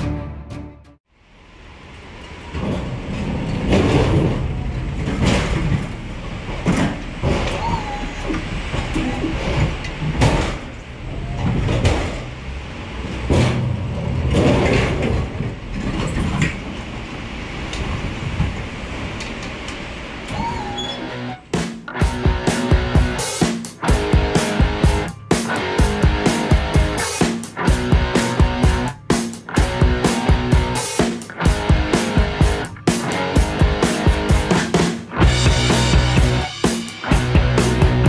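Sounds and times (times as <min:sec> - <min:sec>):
truck trailer rumble: 0:02.0 - 0:19.2
clanks and knocks of trailer load: 0:02.6 - 0:07.8, 0:08.4 - 0:12.4, 0:13.1 - 0:16.9
short squeak: 0:20.3 - 0:21.5.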